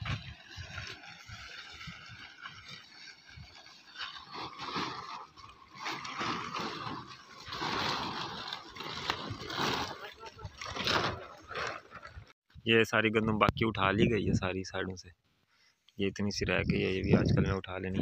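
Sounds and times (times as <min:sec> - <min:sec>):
plastic tarpaulin rustling: 0:00.0 - 0:12.4.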